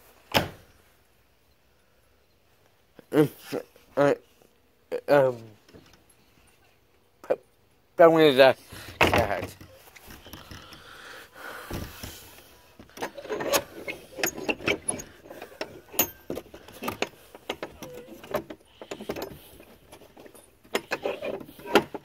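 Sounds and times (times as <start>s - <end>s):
irregular clicks and knocks: 8.9s - 11.0s, 11.7s - 22.0s.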